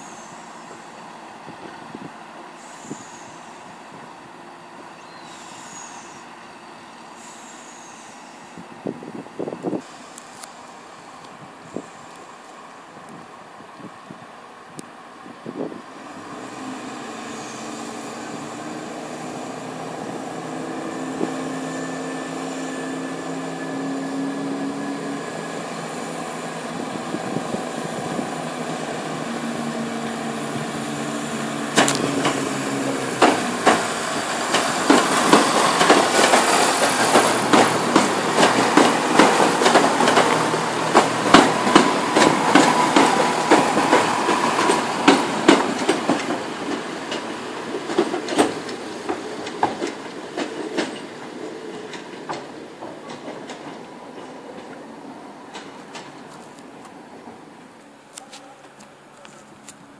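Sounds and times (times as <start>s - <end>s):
diesel train engine droning: 0.0s - 58.1s
train wheels clattering on rails: 26.4s - 57.5s.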